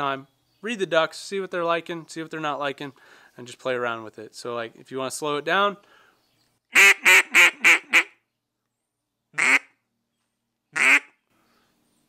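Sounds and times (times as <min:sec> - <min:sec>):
duck call quacks: 0:06.7 - 0:08.2, 0:09.4 - 0:09.7, 0:10.8 - 0:11.2.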